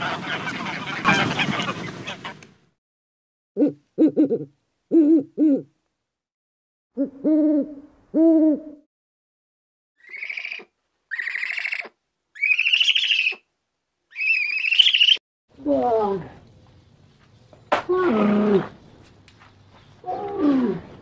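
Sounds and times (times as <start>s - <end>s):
owl hooting: 10.0s - 13.4s, 14.1s - 15.2s.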